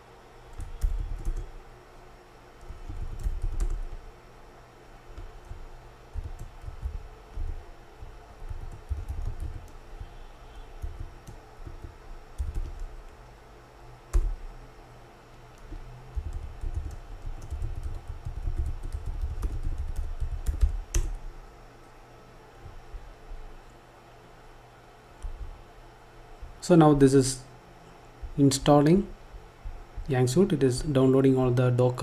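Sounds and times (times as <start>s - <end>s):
typing on keyboard: 0.6s - 1.5s, 2.6s - 4.0s, 5.2s - 10.1s, 10.8s - 13.2s, 15.6s - 21.2s.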